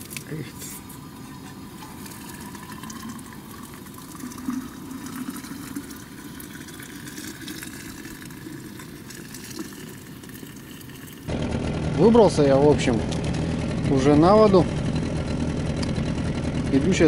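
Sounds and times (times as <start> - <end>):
water pouring into flask: 0.0 - 11.3.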